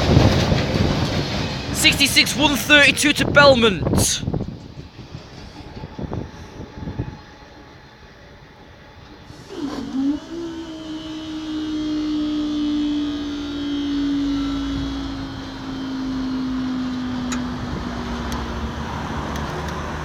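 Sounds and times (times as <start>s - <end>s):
road traffic rumble: 14.2s - 20.0s.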